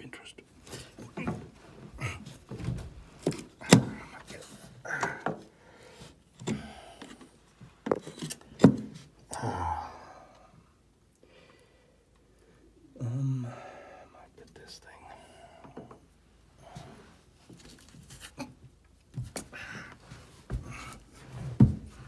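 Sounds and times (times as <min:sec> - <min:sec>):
knocks and scraping on wooden boards: 0:06.4 - 0:09.2.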